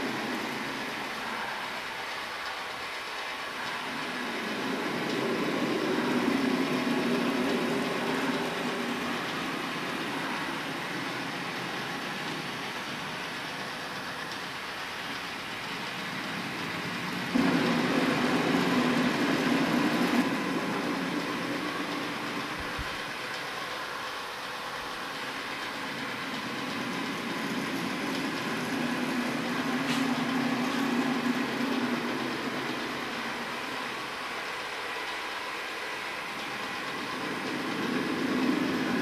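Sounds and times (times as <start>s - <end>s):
drawing machine rumble and whir: 0.0s - 39.0s.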